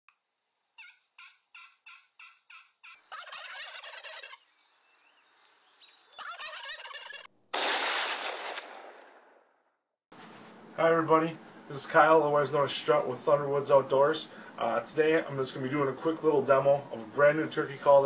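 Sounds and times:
turkey yelps: 0:00.8 - 0:04.8, 0:05.7 - 0:07.3
turkey gobbles: 0:00.8 - 0:05.2, 0:05.8 - 0:07.3.

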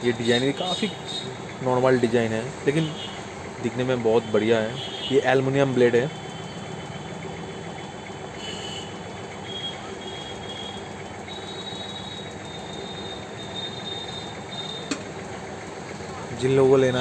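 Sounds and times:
road traffic rumble: 0:00.0 - 0:17.0
faint high whining tones: 0:03.7 - 0:15.0.

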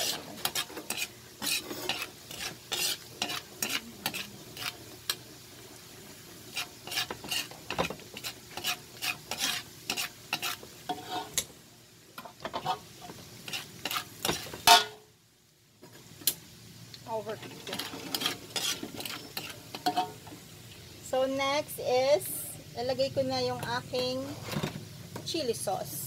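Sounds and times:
spatula scraping and knocking pan: 0:00.0 - 0:05.2, 0:06.4 - 0:11.5, 0:12.2 - 0:15.0, 0:17.4 - 0:20.4, 0:23.6 - 0:25.3
garlic sizzling in oil: 0:00.0 - 0:26.0.

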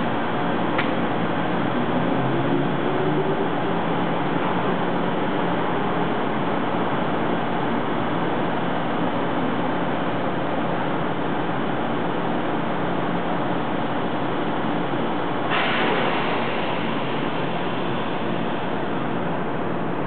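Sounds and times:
electric train equipment humming: 0:00.0 - 0:20.0
air hiss: 0:15.5 - 0:18.8.

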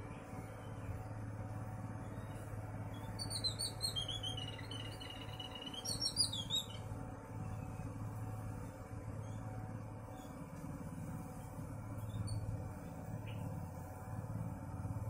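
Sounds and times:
steady low hum: 0:00.0 - 0:15.0
bird singing: 0:02.0 - 0:07.9, 0:13.2 - 0:13.6.

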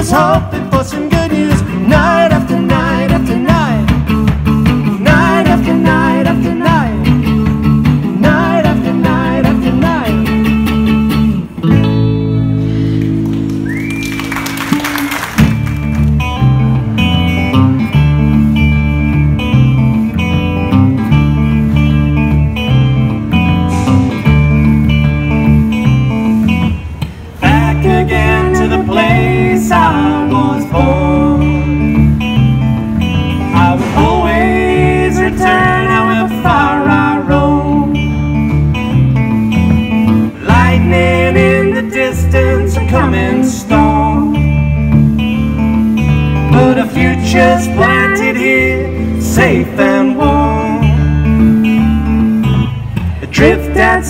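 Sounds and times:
electric bass: 0:00.0 - 0:54.0
electric guitar: 0:00.0 - 0:54.0.

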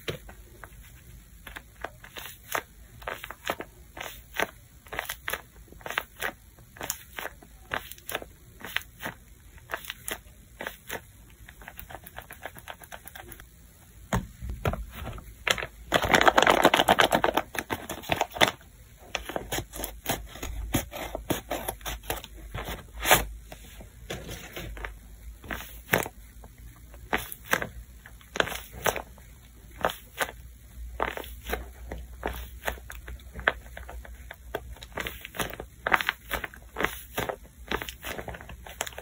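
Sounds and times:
paper squishies crinkling: 0:00.0 - 0:13.4, 0:14.6 - 0:39.0
paper bag crumpling: 0:15.4 - 0:18.6.

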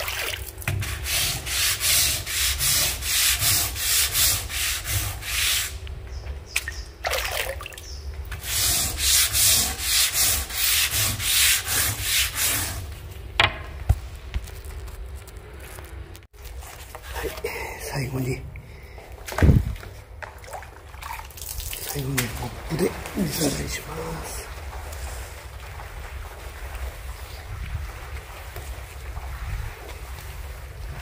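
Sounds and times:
water rinsing: 0:00.0 - 0:03.8, 0:06.6 - 0:09.0, 0:19.1 - 0:31.0
scrub brush scrubbing wet wood: 0:00.0 - 0:05.8, 0:08.3 - 0:13.1, 0:21.8 - 0:31.0.

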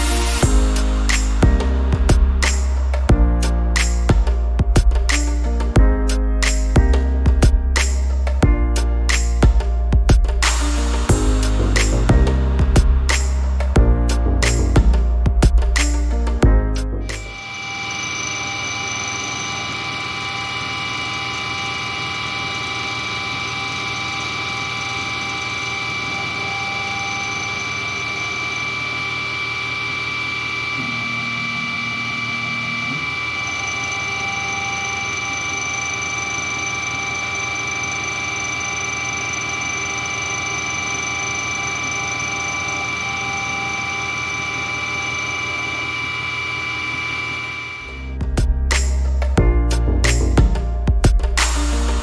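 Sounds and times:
lower hum: 0:00.0 - 0:52.0
metal cutting noise: 0:17.0 - 0:48.1
milling spindle high tone: 0:17.0 - 0:48.2.

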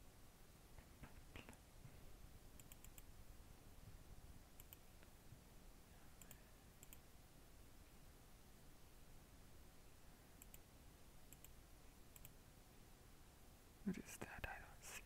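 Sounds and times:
computer mouse clicks: 0:02.6 - 0:03.1, 0:04.6 - 0:04.8, 0:06.2 - 0:07.0, 0:10.4 - 0:10.6, 0:11.3 - 0:12.4.

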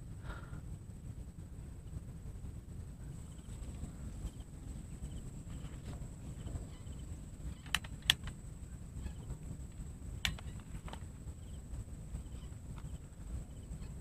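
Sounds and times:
wind rumble on microphone: 0:00.0 - 0:14.0
airgun clicks and knocks: 0:07.6 - 0:08.4, 0:10.2 - 0:11.1.

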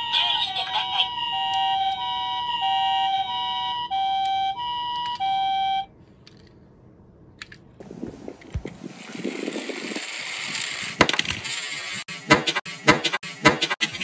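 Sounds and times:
falling siren wail: 0:00.0 - 0:05.9
two-tone ambulance siren: 0:00.0 - 0:05.9.

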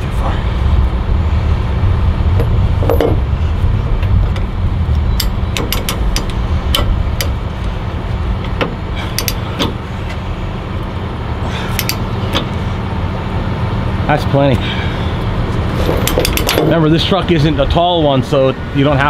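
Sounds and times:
truck engine idling: 0:00.0 - 0:19.0
metal chain clinking: 0:15.8 - 0:16.8.

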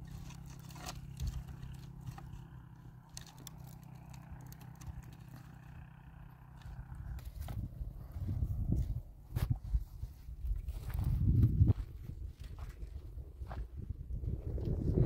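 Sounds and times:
sticks and twigs clattering: 0:00.0 - 0:05.7
steady low hum: 0:00.0 - 0:15.0.

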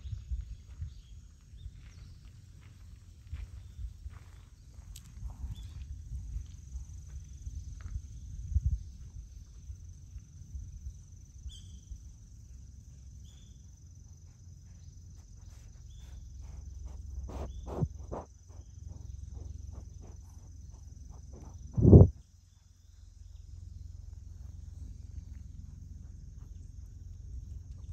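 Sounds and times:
low wind rumble: 0:00.0 - 0:02.3, 0:02.9 - 0:12.4, 0:15.3 - 0:27.9
high-pitched whine: 0:16.5 - 0:22.3.

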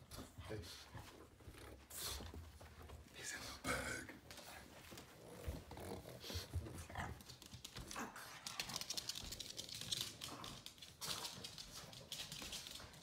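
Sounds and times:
soft footsteps: 0:00.7 - 0:07.9
dog claws clicking on hard floor: 0:06.8 - 0:13.0.

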